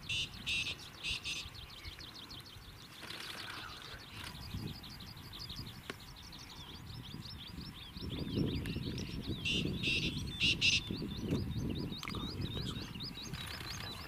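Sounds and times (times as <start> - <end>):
harsh bird bursts: 0.0 - 1.6, 9.4 - 11.0
bird chirping rapidly: 0.0 - 14.0.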